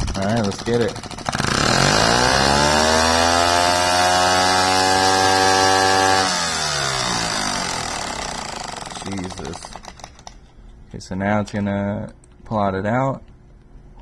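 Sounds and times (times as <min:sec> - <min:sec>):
air engine whining: 0:00.0 - 0:10.4.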